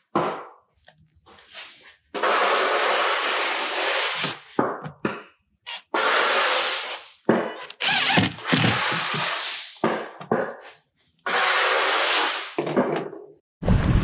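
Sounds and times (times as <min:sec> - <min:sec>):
cordless driver driving screws: 0:07.6 - 0:09.4.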